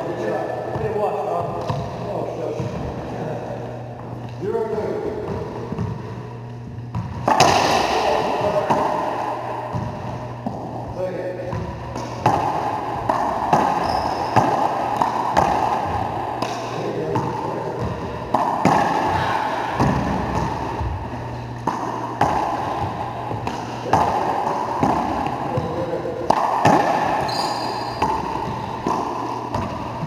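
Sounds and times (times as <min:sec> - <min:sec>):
low hum: 0:00.0 - 0:30.0
racquetball smacking off walls: 0:06.9 - 0:10.7, 0:11.5 - 0:21.0, 0:21.6 - 0:30.0.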